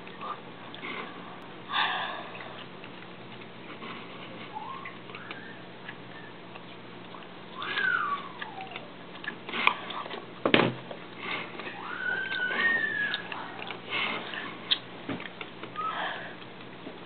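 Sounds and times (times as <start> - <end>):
steady low hum: 0.0 - 17.0
animal calling: 4.4 - 6.7, 7.5 - 10.0, 11.6 - 14.9.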